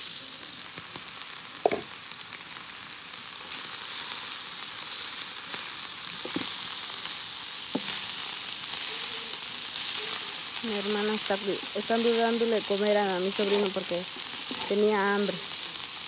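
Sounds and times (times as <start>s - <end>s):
meat sizzling in a pan: 0.0s - 16.0s
stirring knocks and scrapes: 6.2s - 6.6s.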